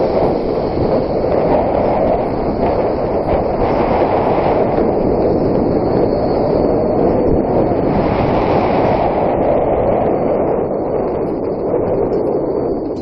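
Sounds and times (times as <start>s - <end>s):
zipline pulleys rolling on cable: 0.0s - 7.9s
wind over microphone: 0.0s - 13.0s.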